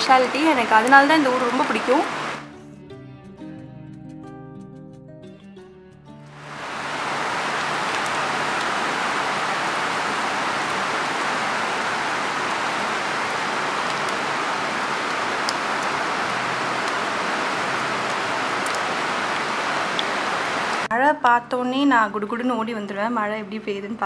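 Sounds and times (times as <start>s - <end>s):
heavy rain pouring: 0.0s - 2.4s, 6.3s - 20.9s.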